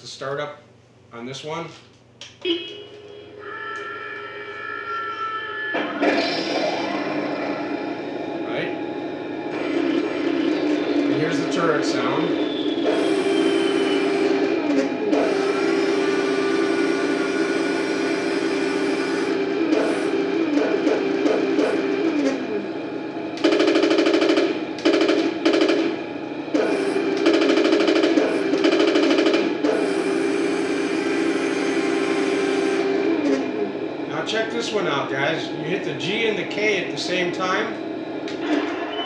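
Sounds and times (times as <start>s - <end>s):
simulated machine-gun fire: 23.4s - 33.5s.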